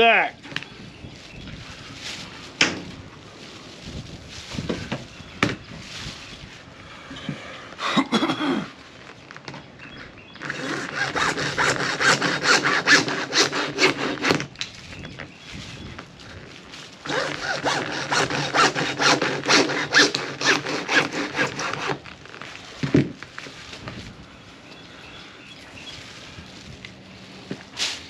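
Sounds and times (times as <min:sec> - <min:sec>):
hacksaw cutting plastic pipe: 0:10.5 - 0:14.5, 0:17.1 - 0:22.0.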